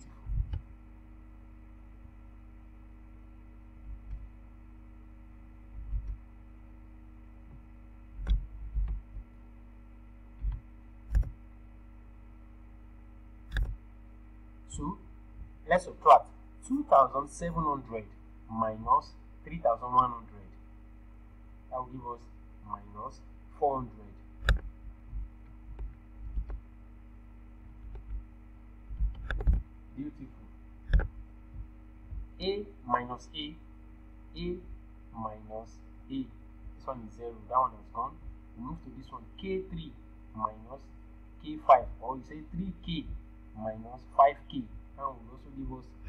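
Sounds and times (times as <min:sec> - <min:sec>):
faint steady hum: 0:00.0 - 0:46.0
computer mouse and keyboard clicks: 0:10.4 - 0:11.4, 0:13.5 - 0:13.8, 0:24.4 - 0:24.7, 0:25.7 - 0:26.6, 0:28.9 - 0:29.7, 0:30.9 - 0:31.2.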